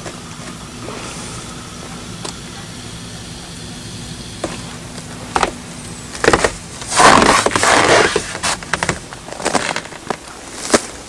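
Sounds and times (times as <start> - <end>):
steady low hum: 0.0 - 11.0
footsteps crunching in snow: 4.4 - 11.0.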